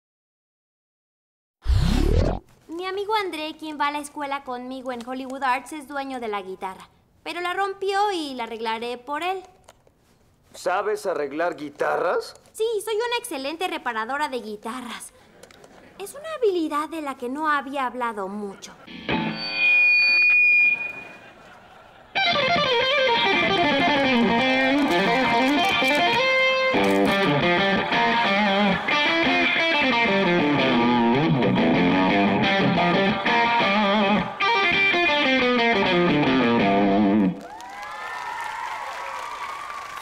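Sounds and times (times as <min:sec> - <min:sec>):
distorted electric guitar lead: 0:18.9 - 0:21.0, 0:22.2 - 0:37.4
steady amp tone: 0:18.9 - 0:21.1.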